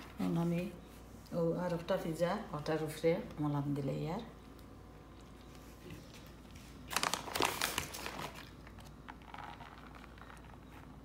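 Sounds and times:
plastic bag crinkling: 0:06.3 - 0:11.0.

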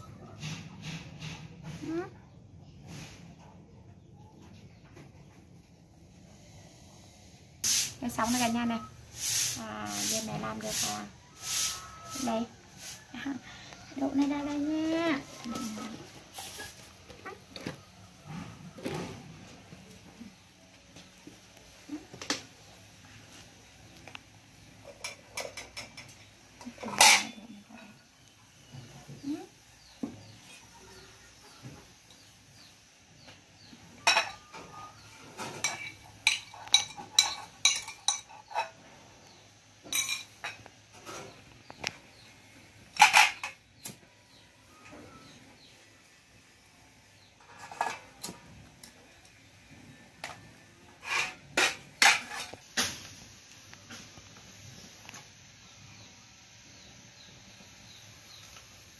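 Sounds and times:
ceramic dishes clinking and scraping: 0:24.9 - 0:27.9, 0:34.0 - 0:38.8, 0:39.8 - 0:40.6, 0:43.0 - 0:43.6
metal wok and ladle clanking: 0:25.0 - 0:27.5.

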